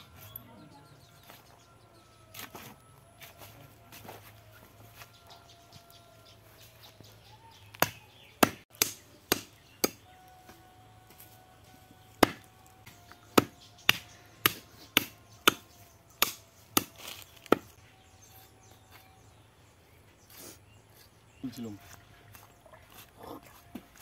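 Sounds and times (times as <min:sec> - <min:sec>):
cleaver chopping meat on wood: 0:07.7 - 0:10.1, 0:12.2 - 0:17.7.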